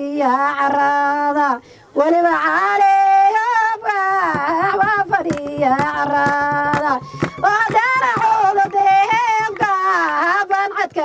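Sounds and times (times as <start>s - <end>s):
woman singing: 0.0s - 11.0s
sharp percussive hits: 4.3s - 9.9s.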